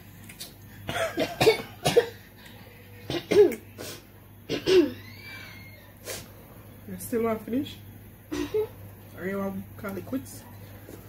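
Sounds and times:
person coughing: 0.9s - 2.2s, 3.1s - 3.6s, 4.5s - 5.0s.

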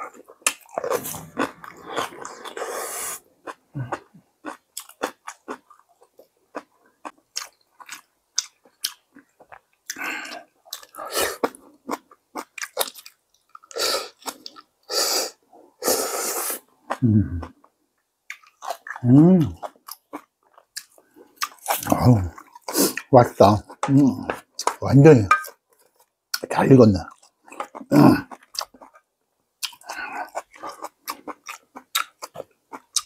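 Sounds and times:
wet chewing with mouth clicks: 0.0s - 14.7s, 18.3s - 24.8s, 27.1s - 33.0s
slurping broth: 0.8s - 3.3s.

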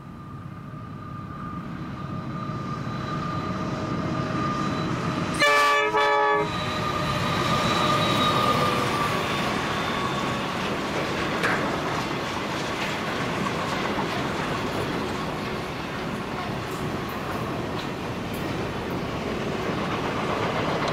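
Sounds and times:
diesel locomotive rumble: 0.0s - 20.9s
train horn blasts: 5.3s - 7.2s
freight wagons rolling past: 6.6s - 20.9s.

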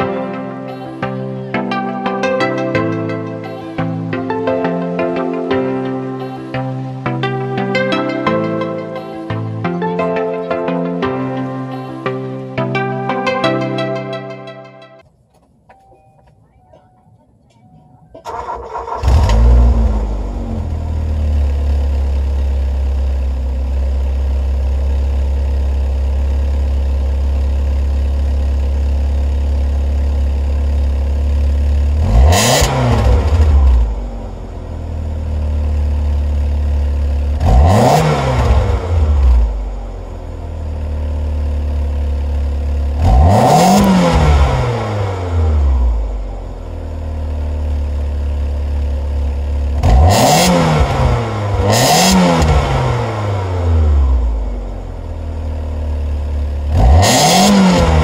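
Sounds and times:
car engine revving: 18.2s - 25.5s, 28.5s - 58.0s
car engine idling: 18.2s - 58.0s.

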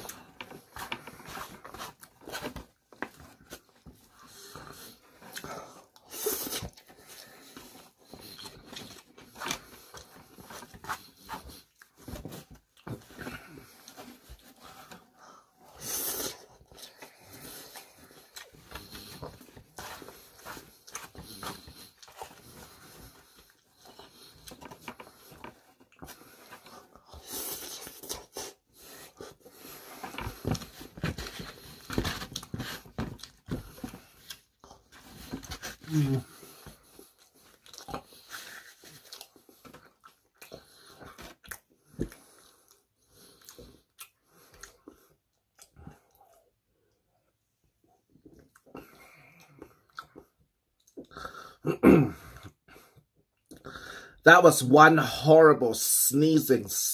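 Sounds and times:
wet chewing: 16.1s - 30.9s, 36.8s - 46.4s
breathing through the nose: 53.6s - 54.2s.

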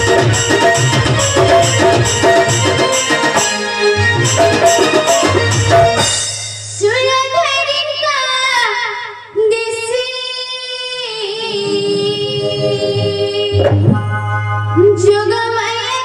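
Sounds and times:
child singing: 6.8s - 13.9s, 14.8s - 16.0s.

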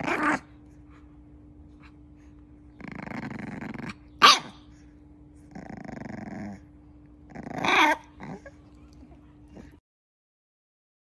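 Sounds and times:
puppy growling: 0.0s - 1.0s, 2.7s - 4.8s, 5.4s - 9.8s
puppy yapping: 3.9s - 4.7s.

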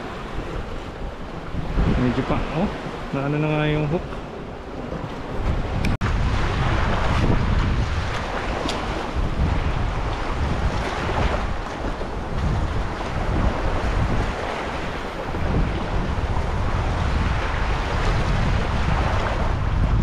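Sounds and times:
waves washing on shore: 0.0s - 20.0s
wind buffeting microphone: 0.0s - 20.0s.

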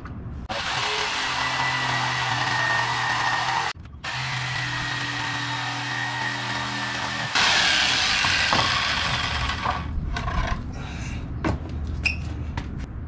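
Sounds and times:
electric jigsaw cutting wood: 0.5s - 9.9s.

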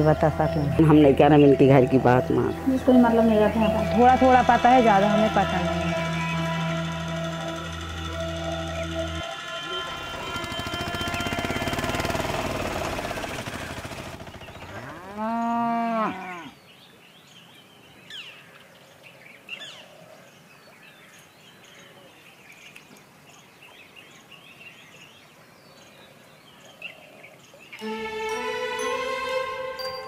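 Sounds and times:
loud traffic noise: 2.6s - 14.9s
cow mooing: 14.7s - 16.6s.

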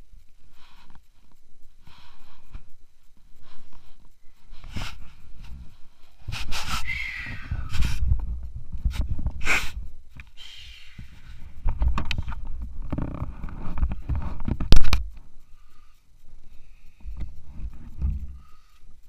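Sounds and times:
cloth rustling on microphone: 0.0s - 10.2s.

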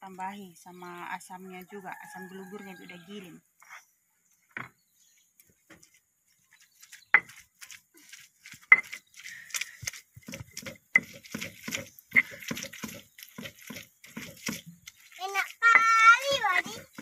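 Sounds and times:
wet squishing of fish in mortar: 8.2s - 17.0s.

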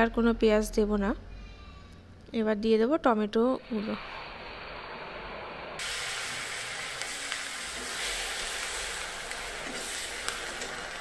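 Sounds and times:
tomatoes sizzling in hot oil: 3.9s - 11.0s.

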